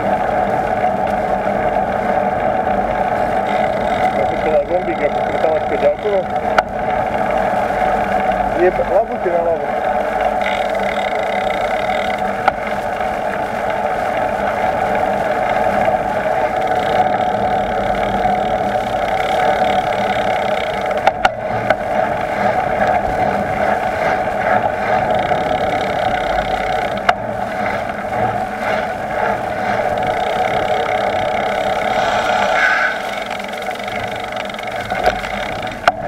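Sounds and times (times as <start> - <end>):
bicycle tyre noise on road: 0.0 - 36.0
wind rushing: 31.4 - 34.6.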